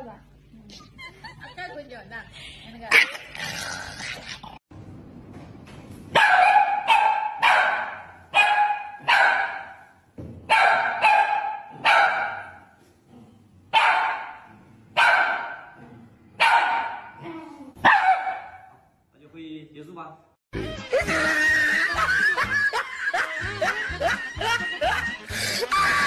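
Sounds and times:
small dog barking: 6.2 - 9.8, 10.5 - 12.6, 13.8 - 15.8, 16.4 - 17.2, 17.8 - 18.8.

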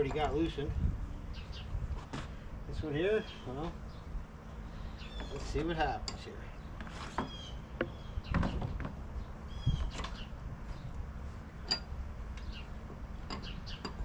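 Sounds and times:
wrench clinking on metal: 11.6 - 11.9, 13.2 - 14.0.

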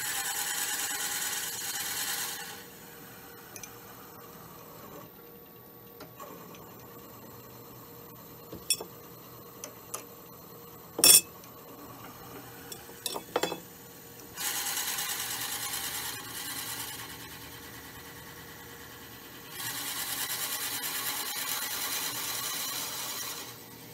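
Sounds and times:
wood lathe spinning: 14.4 - 17.8.

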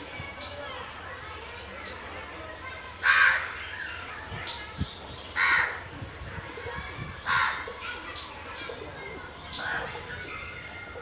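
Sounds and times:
crow cawing: 3.0 - 3.5, 5.4 - 5.8, 7.3 - 7.6.

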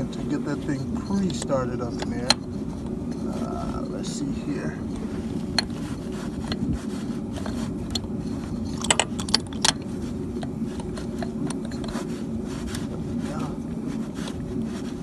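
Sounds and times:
steady low hum: 0.0 - 15.0
metallic clinks and rattles: 7.3 - 10.0, 10.7 - 12.1.

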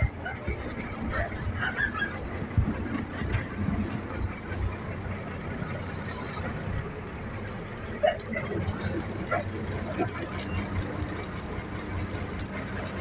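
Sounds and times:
truck engine and road rumble: 0.0 - 13.0.

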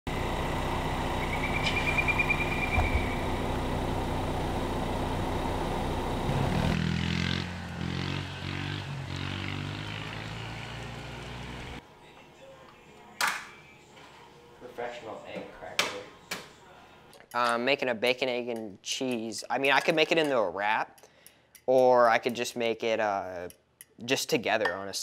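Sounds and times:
motor engine running: 0.1 - 11.8
high chirping trill: 1.2 - 3.4.

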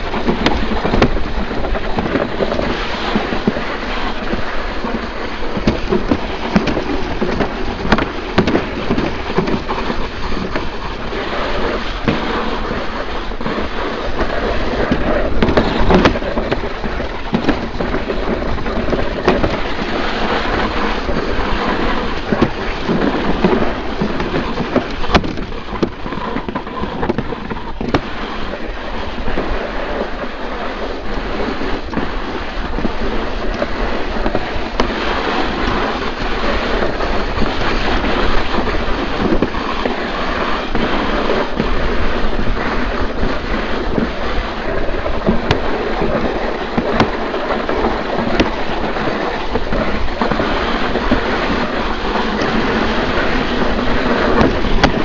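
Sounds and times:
sled knocking and clattering: 0.0 - 55.0
sled runners rumbling and scraping: 0.0 - 55.0.

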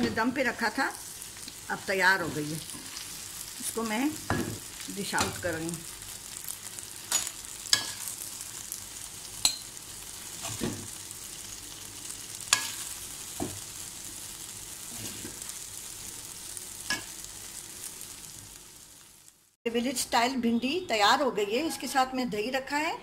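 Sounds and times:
hot pan sizzling: 0.0 - 20.2.

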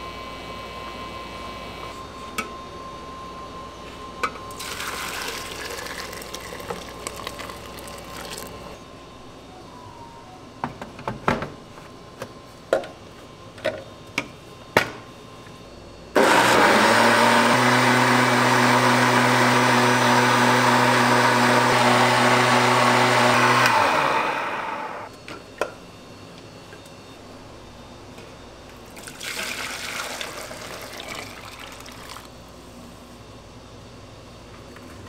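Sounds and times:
kitchen blender running: 4.5 - 8.6, 16.2 - 25.1, 29.0 - 32.3.

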